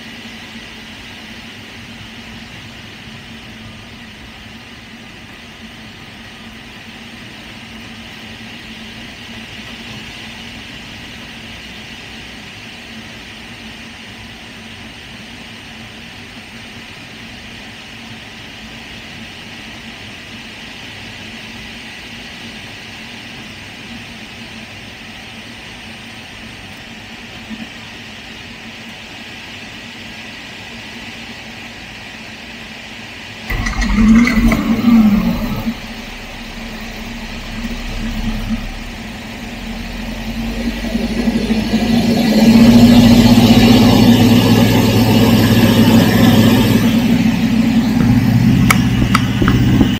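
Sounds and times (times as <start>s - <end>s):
aircraft engine running loudly: 0.0s - 49.9s
airflow over cockpit canopy: 33.5s - 49.9s.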